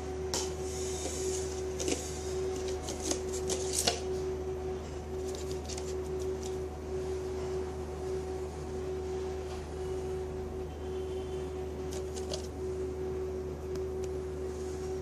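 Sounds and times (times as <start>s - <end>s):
electrical hum: 0.0s - 15.0s
plastic cup crackling: 1.0s - 4.1s.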